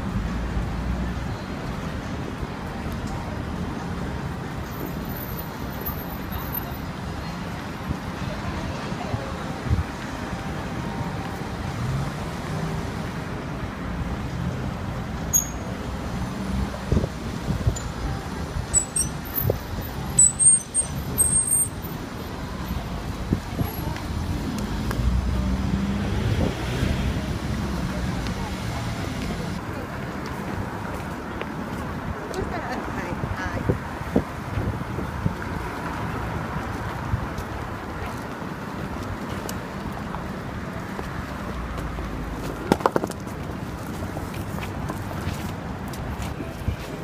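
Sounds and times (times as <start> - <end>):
crowd noise: 0.0 - 47.0
street traffic: 0.0 - 47.0
high squeaks: 15.3 - 15.8, 18.7 - 21.8.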